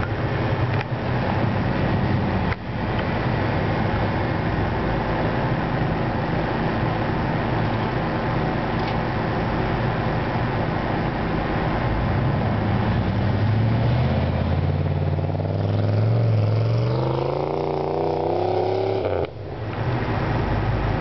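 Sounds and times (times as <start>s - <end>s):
pickup engine revving under load: 11.6s - 21.0s.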